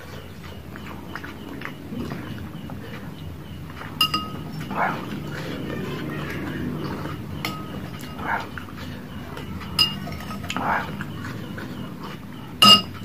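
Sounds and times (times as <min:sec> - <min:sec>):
spoon clinking against ceramic bowl: 0:04.0 - 0:04.4, 0:09.8 - 0:10.6, 0:12.6 - 0:13.0.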